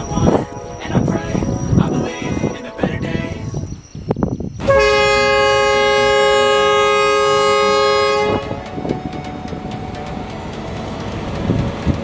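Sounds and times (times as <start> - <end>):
locomotive air horn blast: 0.0 - 3.5, 4.6 - 10.6
low train rumble: 0.0 - 12.0.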